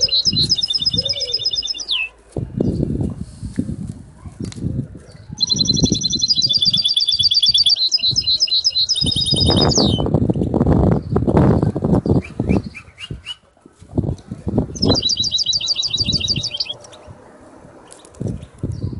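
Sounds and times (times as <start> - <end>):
canary singing trills: 0.0 - 2.8, 5.3 - 10.1, 14.7 - 17.2.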